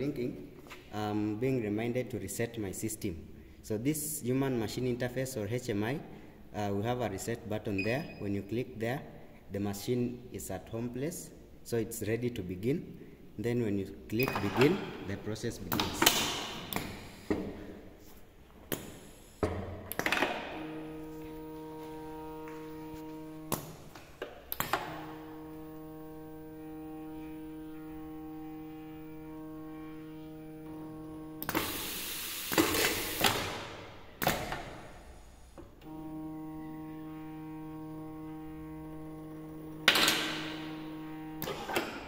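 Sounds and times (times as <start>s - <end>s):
conveyor motor humming: 20.4s - 23.8s, 24.5s - 32.1s, 35.8s - 42.0s
air hissing: 31.4s - 33.7s
pneumatic cylinders clacking: 31.4s - 34.8s, 41.4s - 42.0s.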